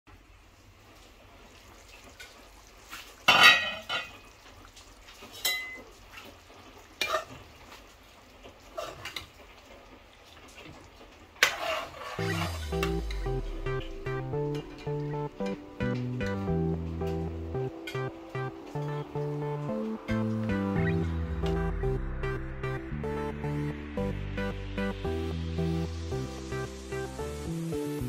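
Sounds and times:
faint sizzle: 0:00.1 - 0:22.0
spatula scraping in pan: 0:11.4 - 0:12.8
guitar music: 0:12.2 - 0:28.0.

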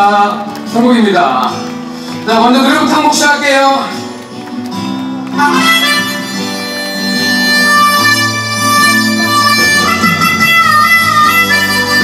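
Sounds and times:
acoustic guitar strumming: 0:00.0 - 0:12.0
harmonica melody: 0:05.3 - 0:12.0.

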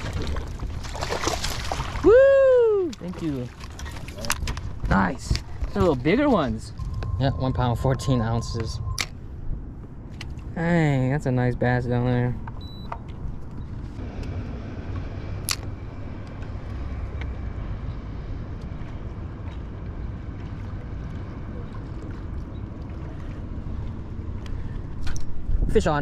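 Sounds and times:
choppy water: 0:00.0 - 0:10.6, 0:14.0 - 0:26.0
wind rumble: 0:03.7 - 0:11.1.

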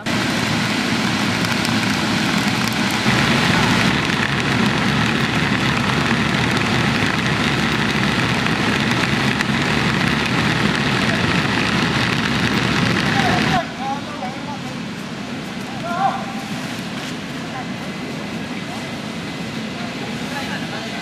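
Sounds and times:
inflation blower rushing air: 0:00.0 - 0:15.6.

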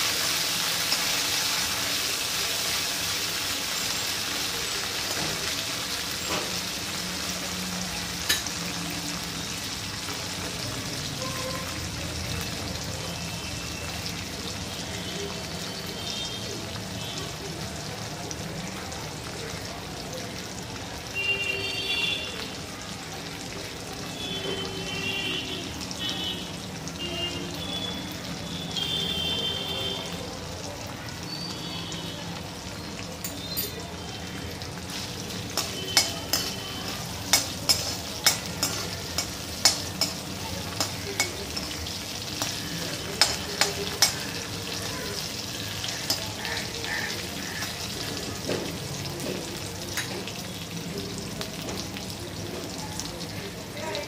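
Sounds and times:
peanuts sizzling in oil: 0:00.0 - 0:54.0
metal spoon scraping pan: 0:34.9 - 0:44.6, 0:45.8 - 0:46.4.

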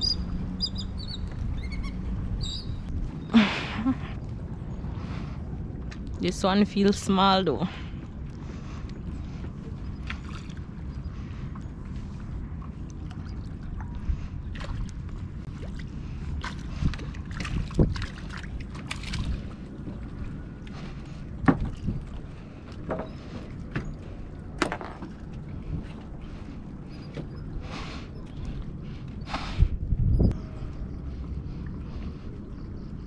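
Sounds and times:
water lapping against dock: 0:00.0 - 0:33.0
wind on microphone: 0:08.0 - 0:24.6, 0:25.3 - 0:33.0
short knocks and splashes: 0:16.4 - 0:20.0.

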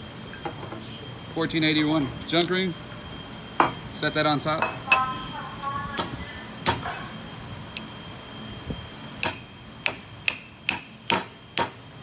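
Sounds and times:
hammer tapping metal: 0:09.2 - 0:11.8.

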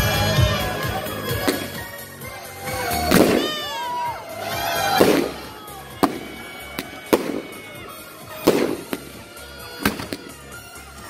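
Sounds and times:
fireworks bursting: 0:02.6 - 0:11.0.

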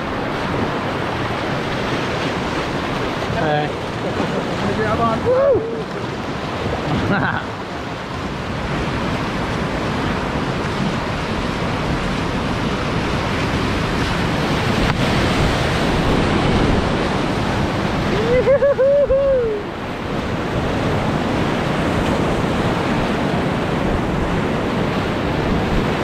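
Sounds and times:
whitewater rushing: 0:00.0 - 0:26.0
person whooping: 0:05.2 - 0:05.9, 0:18.1 - 0:19.7.

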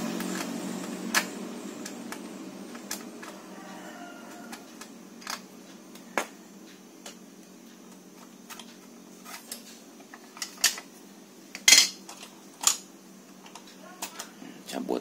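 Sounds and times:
parts clattering: 0:11.5 - 0:14.2.

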